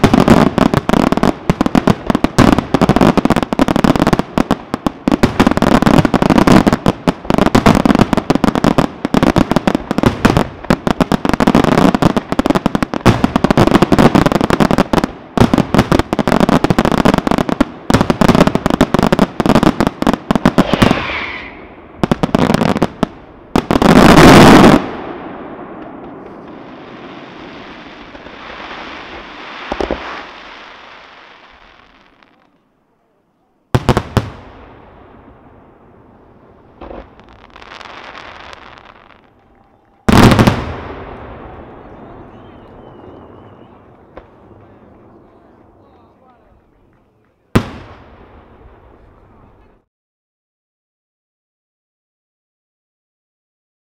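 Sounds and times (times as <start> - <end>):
fireworks bursting and crackling: 0.0 - 32.8, 33.7 - 49.8
loud firework blast: 17.9 - 31.6, 33.8 - 44.8.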